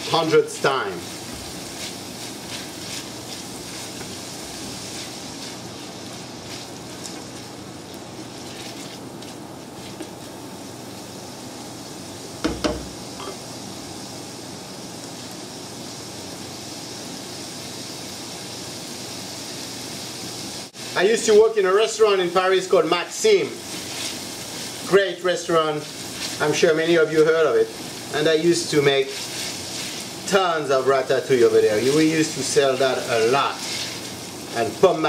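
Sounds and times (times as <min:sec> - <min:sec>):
spatula scraping pan: 0:00.0 - 0:07.5, 0:25.8 - 0:28.1, 0:28.7 - 0:30.3, 0:31.7 - 0:34.3
peppers sizzling in oil: 0:00.0 - 0:35.0
sharp knock: 0:12.4 - 0:12.9.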